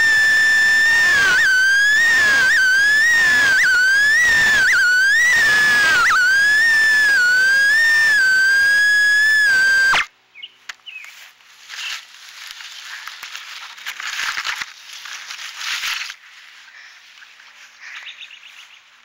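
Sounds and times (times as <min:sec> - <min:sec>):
drone motors whining: 0:00.0 - 0:10.1
rustling and handling noise: 0:10.8 - 0:17.8.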